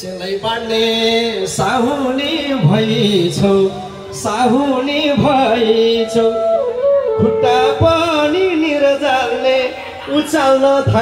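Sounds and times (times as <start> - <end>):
instrumental backing: 1.5 - 11.0
person singing wavering melody: 3.6 - 10.1.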